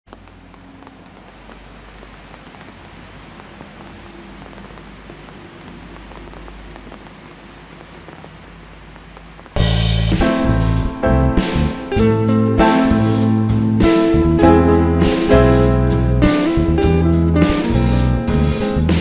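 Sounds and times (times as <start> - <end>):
drops ticking: 0.1 - 15.2
rain falling on wet street: 0.1 - 19.0.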